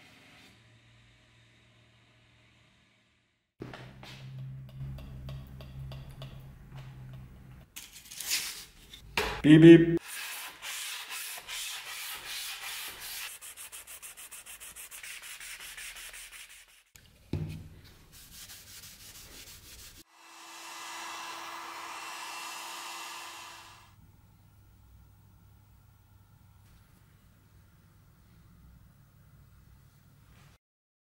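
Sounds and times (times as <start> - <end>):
heat gun blowing: 20.1 - 24.0.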